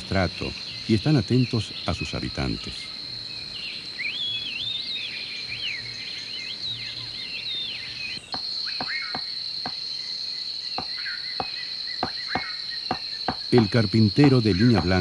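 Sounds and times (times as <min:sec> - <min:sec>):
high insect drone: 0:00.0 - 0:15.0
whistled bird calls: 0:00.6 - 0:09.8, 0:10.7 - 0:15.0
woodpecker tapping on bark: 0:08.2 - 0:09.8, 0:10.8 - 0:15.0.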